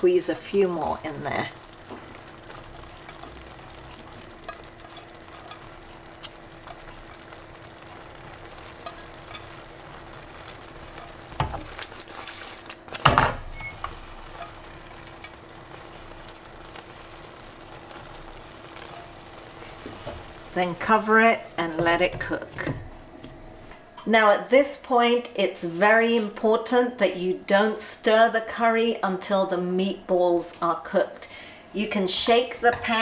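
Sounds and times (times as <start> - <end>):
faint steady hum: 0.0 - 33.0
sauce simmering and sizzling in a pan: 0.2 - 22.2
utensil knocking on pan: 11.4 - 11.8.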